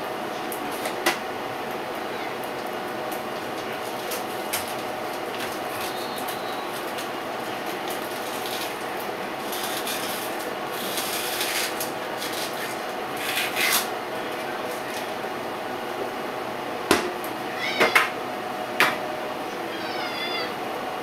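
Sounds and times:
household hum: 0.0s - 21.0s
rummaging through cat food: 3.4s - 15.2s.

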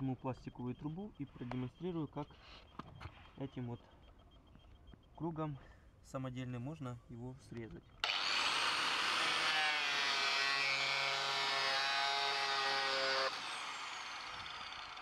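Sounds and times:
angle grinder whining: 8.0s - 15.0s
grinder winding down: 8.0s - 15.0s.

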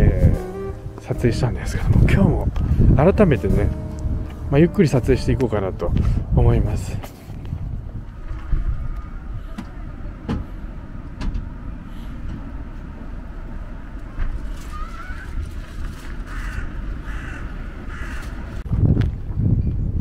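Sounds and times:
wind rumble on microphone: 0.0s - 20.0s
crow cawing: 14.7s - 15.3s, 16.3s - 18.6s.

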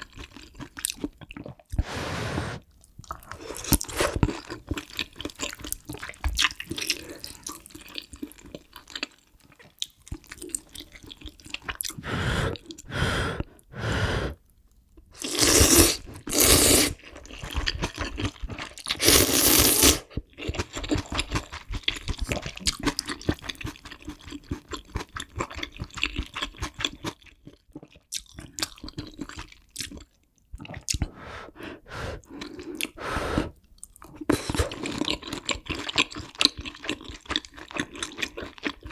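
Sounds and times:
chewing and mouth smacks: 0.0s - 1.8s, 2.8s - 12.0s, 17.1s - 19.0s, 20.1s - 31.1s, 33.6s - 38.9s
loud noodle slurps: 1.8s - 2.7s, 15.2s - 17.0s, 18.9s - 20.1s.

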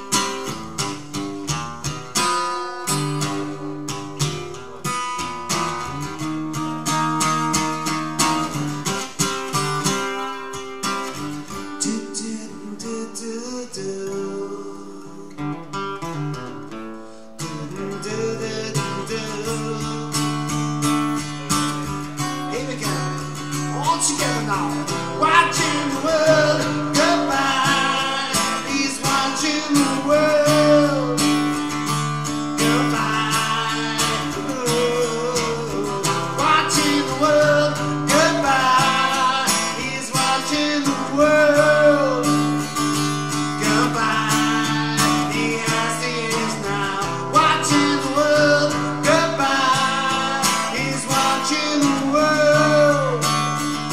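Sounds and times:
strummed acoustic guitar: 0.0s - 53.9s
man singing: 2.2s - 4.6s, 11.5s - 15.6s, 17.4s - 53.6s.

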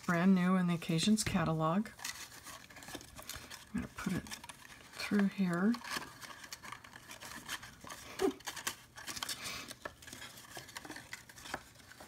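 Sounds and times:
paper and ribbon rustling: 0.0s - 12.0s.

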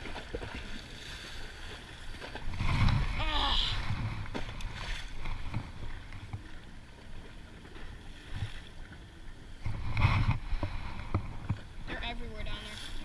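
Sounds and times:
rush of water: 0.0s - 13.0s
waves lapping against concrete: 0.0s - 13.0s
wind on microphone: 2.2s - 6.6s, 9.6s - 13.0s.

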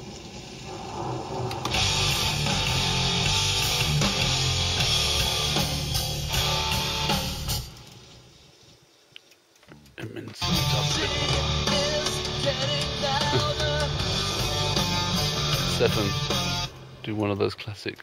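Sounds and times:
hard rock music electric guitar: 1.5s - 7.8s, 10.4s - 17.0s.

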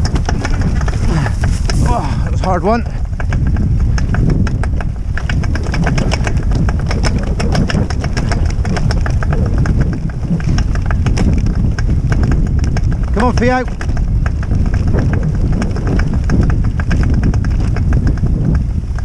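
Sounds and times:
rattling clicks and knocks: 0.0s - 19.0s
tyres rumbling over grass: 0.0s - 19.0s.

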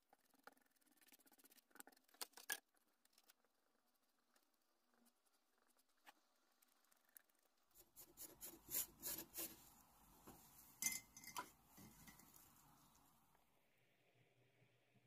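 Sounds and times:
light clicks and scrapes: 10.2s - 13.1s.

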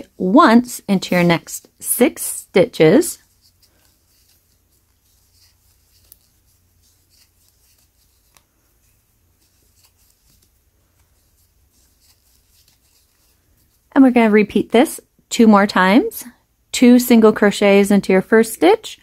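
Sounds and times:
crochet hook ticks and rustles: 3.2s - 6.4s.

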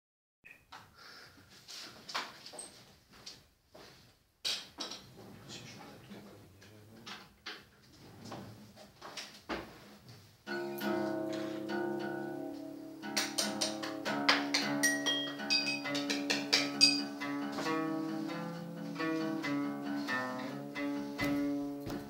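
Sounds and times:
acoustic guitar strumming: 10.5s - 22.0s.

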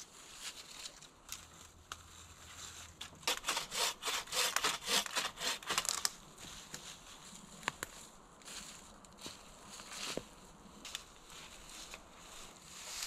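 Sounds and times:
faint rustling: 0.0s - 3.2s, 5.9s - 13.0s
hand saw cutting a branch: 3.1s - 6.1s.

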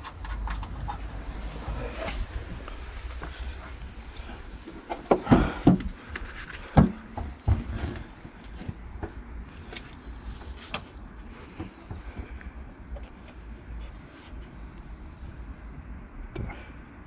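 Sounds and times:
knocks and clunks: 4.7s - 9.2s.

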